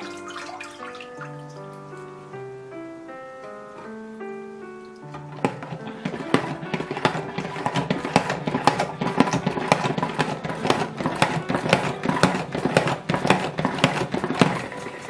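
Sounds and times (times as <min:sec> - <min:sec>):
salad spinner plastic clacks: 0:05.1 - 0:15.0.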